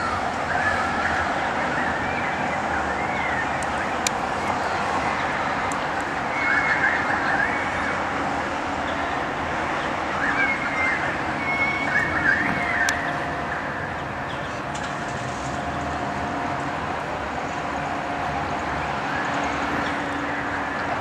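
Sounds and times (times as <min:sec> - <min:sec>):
distant traffic hum: 0:00.0 - 0:21.0
bird calls: 0:09.8 - 0:14.7.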